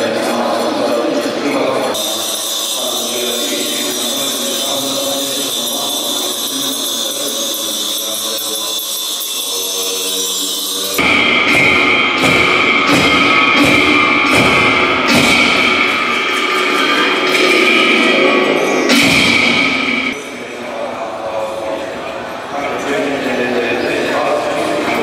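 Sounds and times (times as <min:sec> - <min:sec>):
music: 0:00.0 - 0:20.2
sustained high tone: 0:01.9 - 0:20.5
regular drumbeats: 0:02.0 - 0:20.3.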